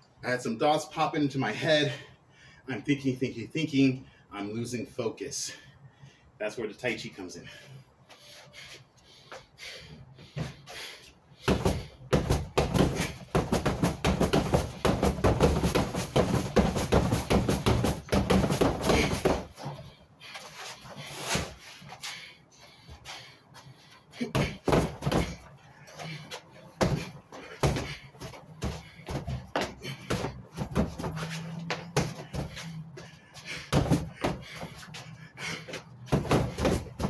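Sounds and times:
punches thudding on heavy bag: 0:11.4 - 0:19.6, 0:24.2 - 0:25.5, 0:26.8 - 0:32.6, 0:33.6 - 0:34.8, 0:36.0 - 0:37.0.

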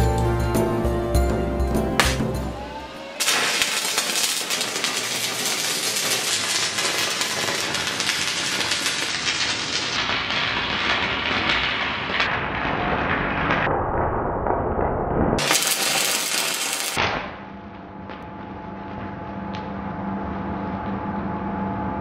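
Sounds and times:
welding arc crackling: 0:03.0 - 0:14.0, 0:15.4 - 0:17.2.

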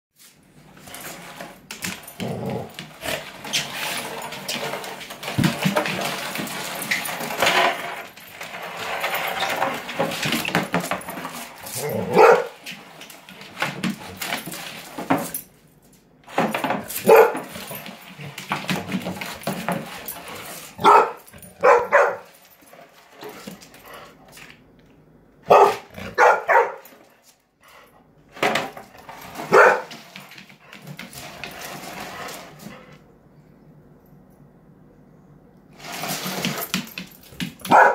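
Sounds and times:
dog barking excitedly: 0:11.8 - 0:12.6, 0:16.9 - 0:17.5, 0:20.8 - 0:22.3, 0:25.4 - 0:26.9, 0:29.5 - 0:29.9, 0:37.6 - 0:37.9.

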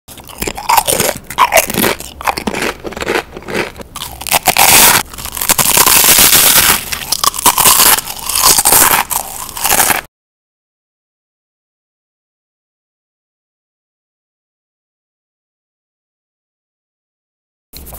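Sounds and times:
chips crunching while chewed: 0:00.1 - 0:10.1.

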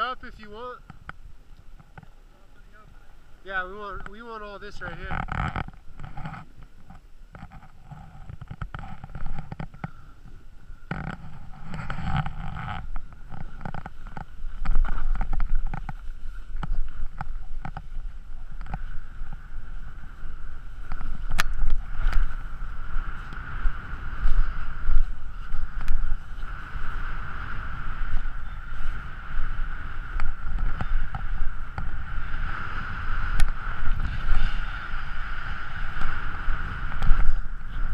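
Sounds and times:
wind buffeting microphone: 0:00.0 - 0:37.9
skis scraping on snow: 0:11.2 - 0:37.9.

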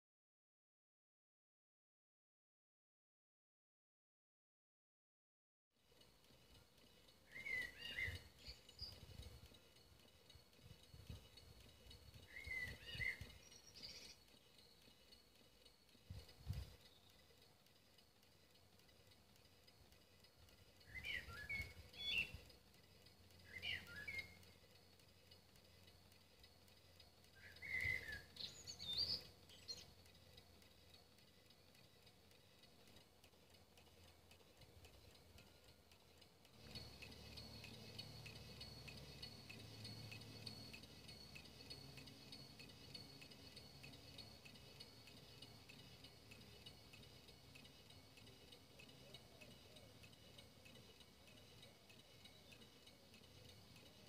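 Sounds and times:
faint steady hum: 0:05.8 - 0:54.0
faint bird chirps: 0:06.4 - 0:33.0.

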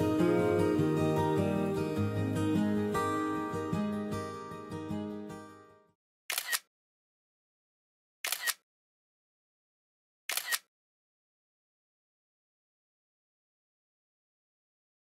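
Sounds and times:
guitar music: 0:00.0 - 0:05.9
camera shutter double click: 0:06.3 - 0:06.7, 0:08.2 - 0:08.6, 0:10.3 - 0:10.7.

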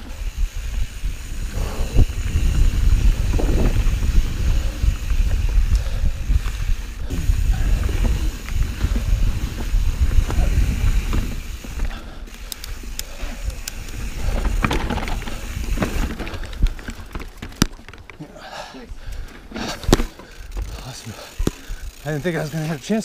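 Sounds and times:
wind buffeting microphone: 0:00.0 - 0:17.9
bike clicks and rattles: 0:00.0 - 0:23.0
bike rolling over dirt: 0:00.0 - 0:23.0.

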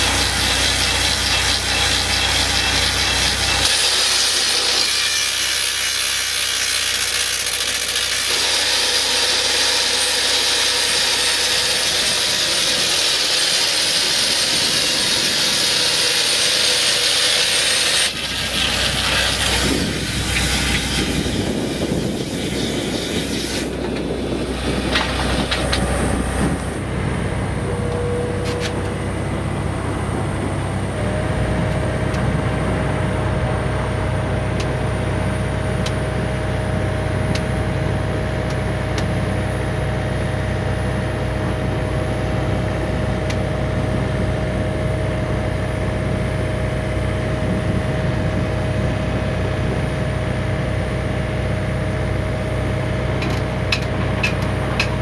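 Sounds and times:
excavator engine rumble: 0:00.0 - 0:04.0, 0:18.0 - 0:55.0
rock drill boring into stone: 0:00.0 - 0:26.7.

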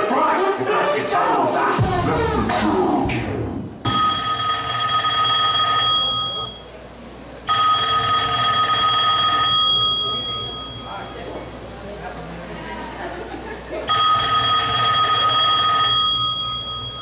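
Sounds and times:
hip hop music: 0:00.0 - 0:03.6
telephone ringing: 0:03.9 - 0:06.6, 0:07.5 - 0:11.0, 0:13.9 - 0:17.0.

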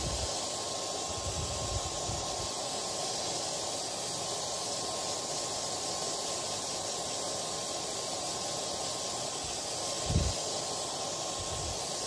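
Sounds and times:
hair dryer blowing: 0:00.0 - 0:12.0.

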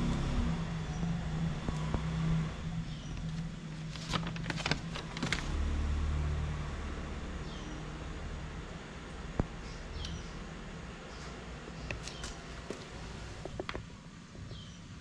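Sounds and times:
deep rumble: 0:00.0 - 0:10.0
vehicle engine humming: 0:00.0 - 0:15.0.

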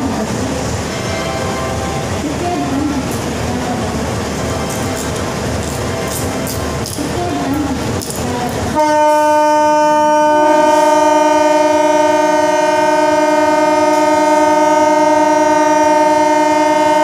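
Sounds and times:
train horn two-note chord: 0:08.8 - 0:17.0.

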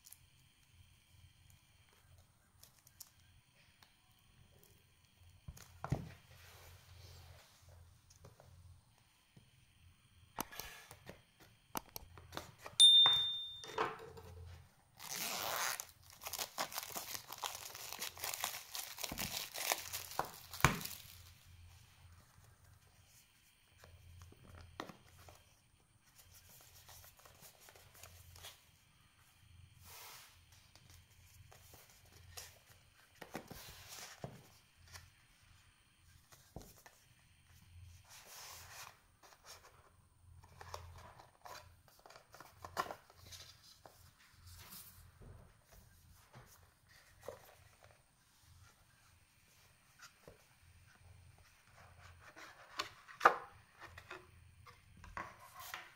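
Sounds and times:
plastic shrink-wrap crackling: 0:15.0 - 0:21.3.

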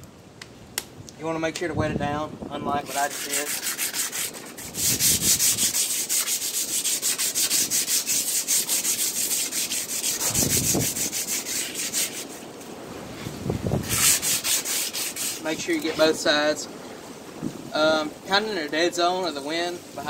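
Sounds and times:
sandpaper rasping on metal: 0:02.8 - 0:12.5, 0:13.8 - 0:16.2.

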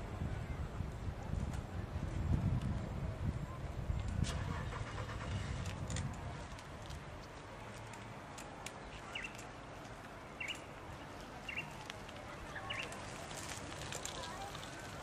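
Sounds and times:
outdoor background noise: 0:00.0 - 0:15.0
bird chirping: 0:08.9 - 0:09.4, 0:10.4 - 0:10.7, 0:11.4 - 0:11.8, 0:12.5 - 0:13.0.

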